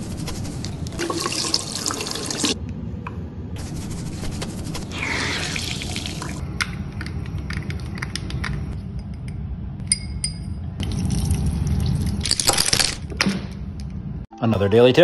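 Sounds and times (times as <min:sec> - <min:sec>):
tap water running: 0:00.9 - 0:02.6, 0:05.0 - 0:06.4.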